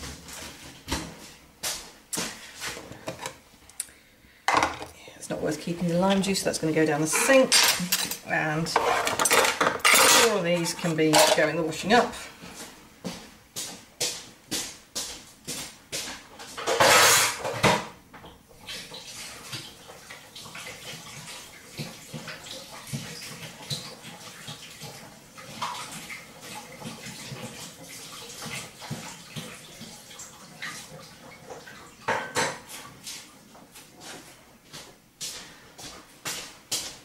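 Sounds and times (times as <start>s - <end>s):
tap water running: 4.5s - 13.7s, 15.5s - 33.7s
dishes and cutlery clinking: 7.0s - 11.6s.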